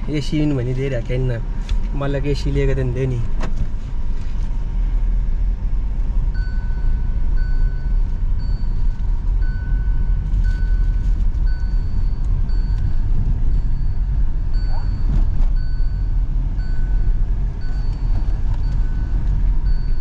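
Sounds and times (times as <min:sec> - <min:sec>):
tractor diesel engine running: 0:00.0 - 0:20.0
short electronic beeps: 0:06.4 - 0:20.0.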